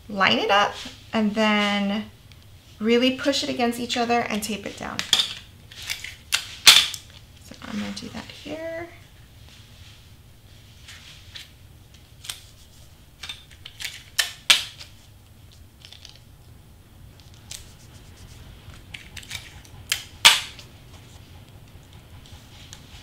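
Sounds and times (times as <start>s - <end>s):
tape tearing from dispenser: 12.2s - 12.7s.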